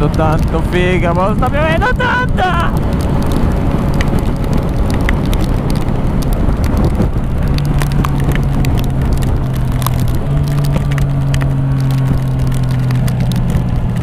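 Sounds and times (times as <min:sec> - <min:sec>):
motorcycle engine humming: 0:00.0 - 0:14.0
raindrops clicking on camera: 0:00.0 - 0:14.0
wind and road noise: 0:00.0 - 0:14.0.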